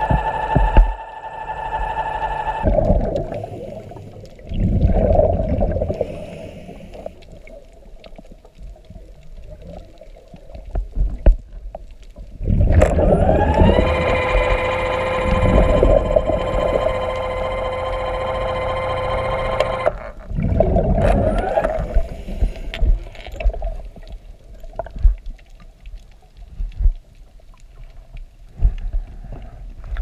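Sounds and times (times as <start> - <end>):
underwater motor whining: 0.0 - 7.2, 12.5 - 23.4
water gurgling and bubbling: 0.0 - 8.1, 12.3 - 25.3.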